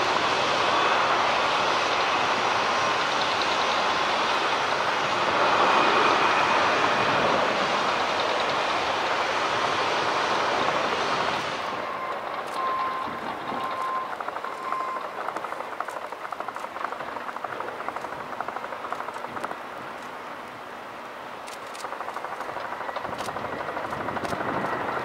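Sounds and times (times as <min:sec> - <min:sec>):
airliner whine: 0:00.0 - 0:25.0
jet engines rushing: 0:00.0 - 0:25.0.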